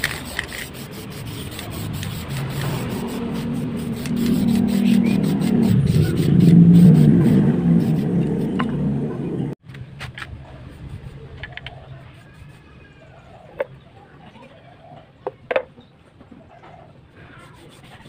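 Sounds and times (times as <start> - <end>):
spray paint can hissing: 0.0 - 8.3
low rumble: 1.9 - 9.6.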